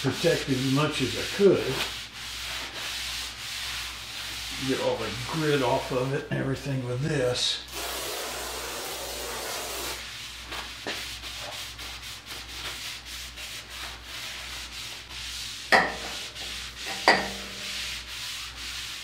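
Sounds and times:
cloth rag rubbing on steel: 0.0 - 6.7, 7.7 - 19.0
sharp knocks on metal: 15.7 - 16.2, 16.9 - 17.5.

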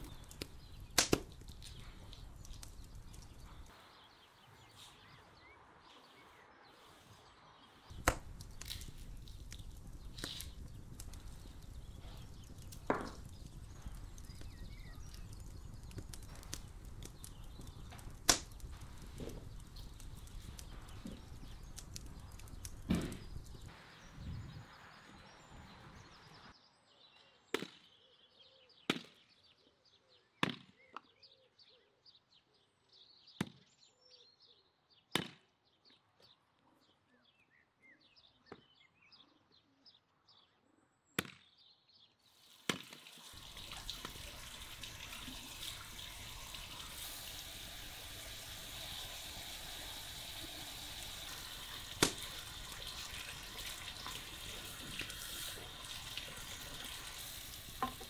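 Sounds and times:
small birds chirping: 0.0 - 58.0
hatchet chopping wood: 8.0 - 8.3.

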